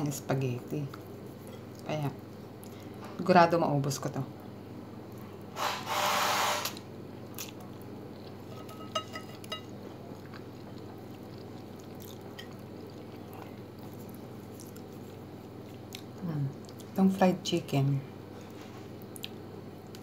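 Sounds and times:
steady low hum: 0.0s - 5.9s, 6.7s - 20.0s
chewing: 7.2s - 17.0s, 18.4s - 20.0s
fork clinking on plate: 8.5s - 9.7s.

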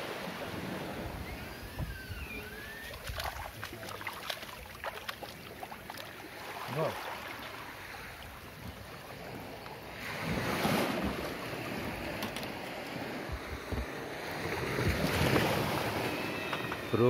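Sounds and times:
sea waves breaking: 0.0s - 17.0s
wind buffeting microphone: 0.5s - 3.6s, 10.1s - 17.0s.

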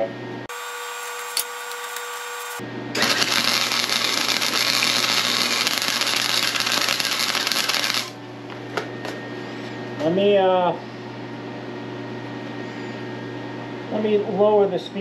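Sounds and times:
welding arc crackling and sizzling: 0.5s - 8.2s.

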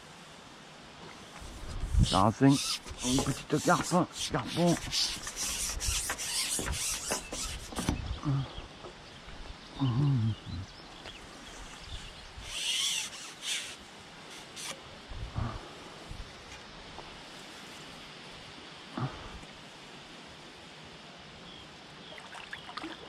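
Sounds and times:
fishing pole rustling in reeds: 1.1s - 8.4s, 11.2s - 18.5s
low wordless vocal sound: 8.2s - 8.7s, 9.7s - 10.7s.

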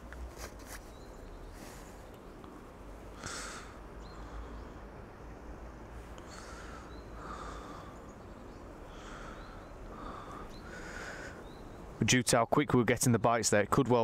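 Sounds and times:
person breathing: 3.2s - 4.9s, 6.1s - 8.1s, 8.9s - 11.5s.

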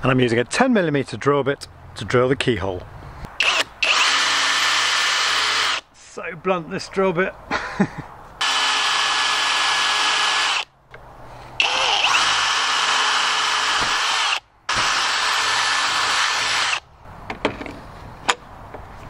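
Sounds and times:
cordless drill boring wood: 3.4s - 5.8s, 8.4s - 10.7s, 11.6s - 16.8s.

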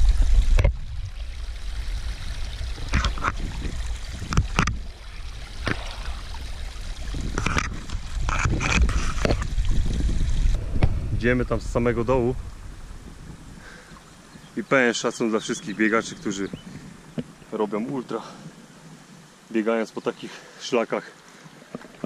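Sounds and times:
wind rumble on microphone: 0.0s - 14.7s, 15.6s - 17.5s.

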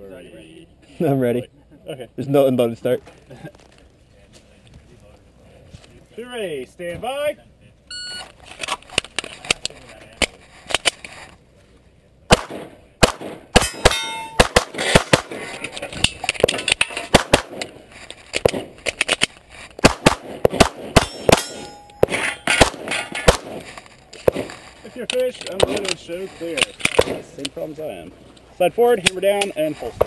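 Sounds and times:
pistol shots: 12.3s - 15.7s, 16.4s - 17.8s, 18.4s - 18.8s, 19.8s - 24.6s, 26.9s - 27.3s
steel targets clanging: 13.6s - 17.7s, 20.8s - 27.4s.

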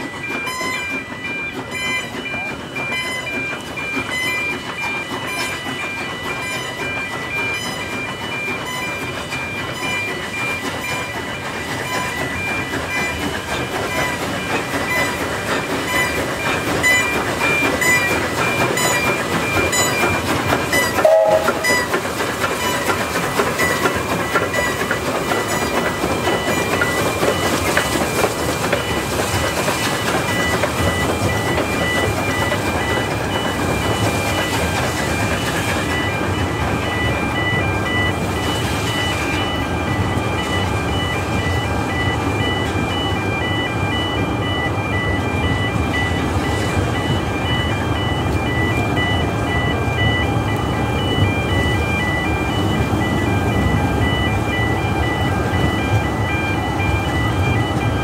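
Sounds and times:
level crossing warning tones: 0.0s - 58.0s
steam locomotive running: 0.0s - 58.0s
brief loud note: 21.0s - 21.8s.

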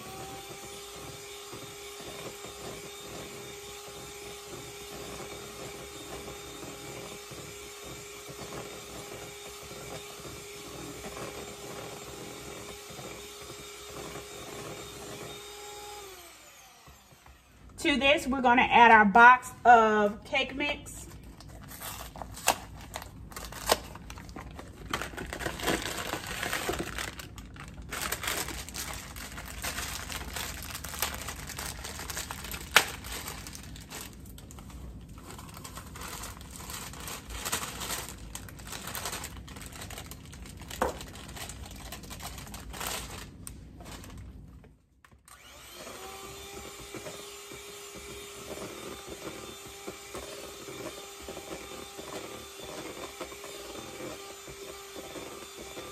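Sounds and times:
electric hand mixer humming: 0.0s - 17.8s, 22.0s - 43.4s, 45.3s - 55.9s
box and plastic bag crinkling: 21.1s - 45.5s.

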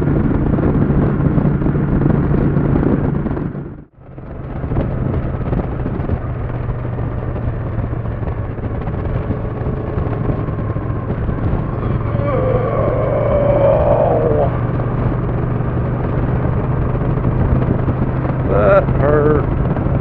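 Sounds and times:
motorcycle engine drone: 0.0s - 20.0s
wind rush: 0.0s - 20.0s.

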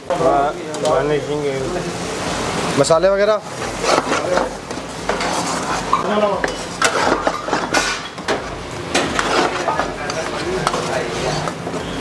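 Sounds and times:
light sizzle: 0.0s - 12.0s
metal ladle scraping iron pan: 5.1s - 8.2s, 9.0s - 11.6s.

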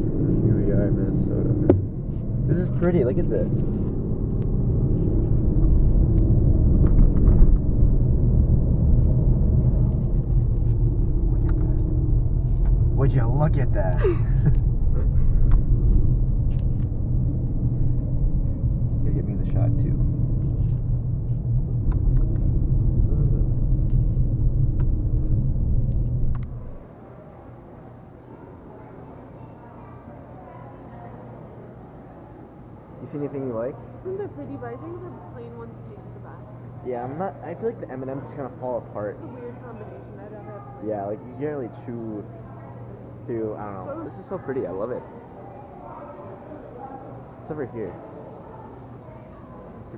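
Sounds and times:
car interior engine and tyre rumble: 0.0s - 26.9s.

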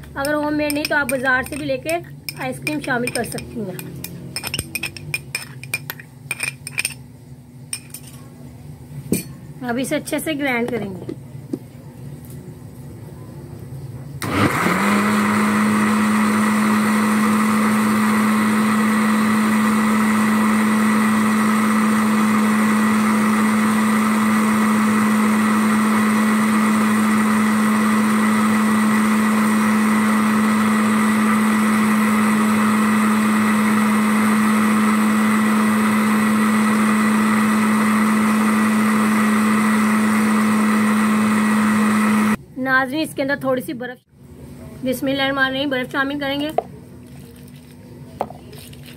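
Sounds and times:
electric blender motor: 14.2s - 42.4s.

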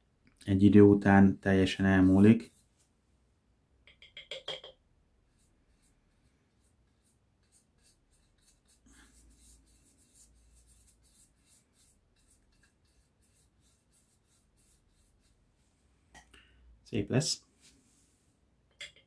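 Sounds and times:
cloth rubbing on wooden handle: 5.3s - 15.8s.

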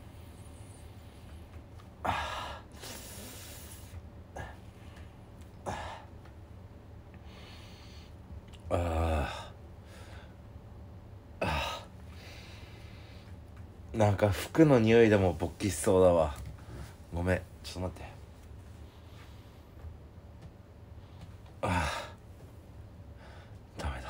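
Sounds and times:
man breathing: 0.0s - 6.2s, 7.1s - 10.5s, 11.4s - 13.4s, 18.6s - 19.9s, 20.9s - 23.7s.

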